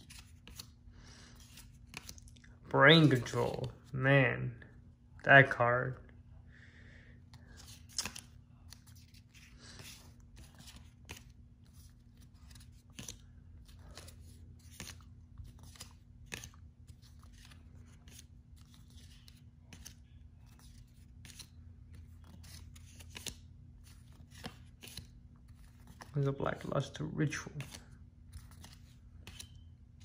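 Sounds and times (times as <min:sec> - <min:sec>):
trading cards flipped and slid: 0:00.0 - 0:02.3, 0:07.2 - 0:30.0.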